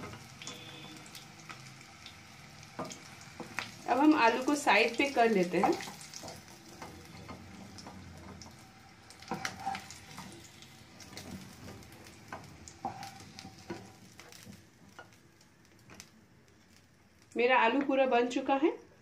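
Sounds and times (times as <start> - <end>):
potatoes sizzling in oil: 0.0 - 18.7
spatula knocking pan: 5.4 - 10.3, 11.1 - 15.2.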